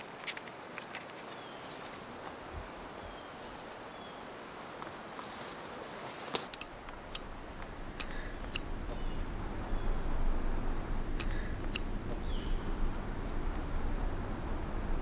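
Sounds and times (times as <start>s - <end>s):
dry twigs snapping: 6.2s - 9.1s.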